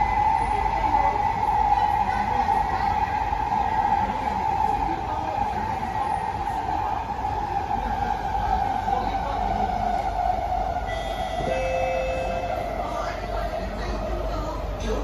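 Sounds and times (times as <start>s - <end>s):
train wheels rumbling: 0.0s - 15.0s.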